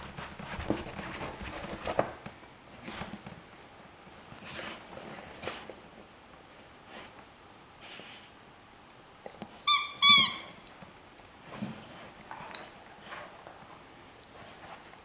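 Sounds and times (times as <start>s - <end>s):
squeaky toy squeaks: 9.6s - 10.6s.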